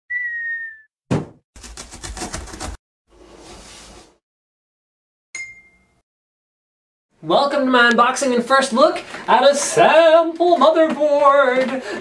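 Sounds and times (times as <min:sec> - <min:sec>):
short high ding: 0:05.4 - 0:06.0.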